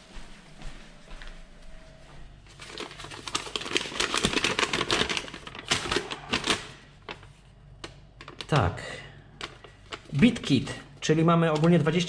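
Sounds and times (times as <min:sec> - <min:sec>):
paper leaflet rustling: 0:02.4 - 0:08.6, 0:09.4 - 0:10.7.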